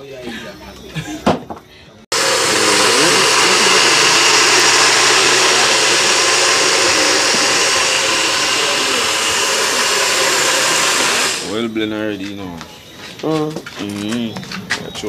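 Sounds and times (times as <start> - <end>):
blender motor whirring: 2.1 - 11.6.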